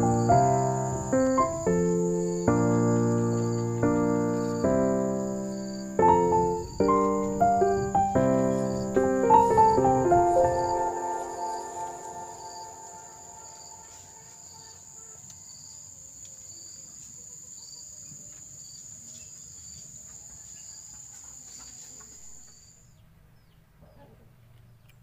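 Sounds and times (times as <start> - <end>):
insect high trill: 0.0 - 15.8
insect chirping: 0.0 - 23.0.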